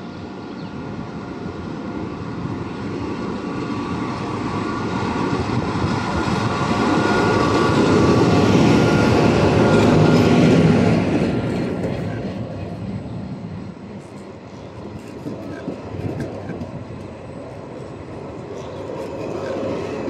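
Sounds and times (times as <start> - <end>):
passenger train moving: 0.0 - 20.0.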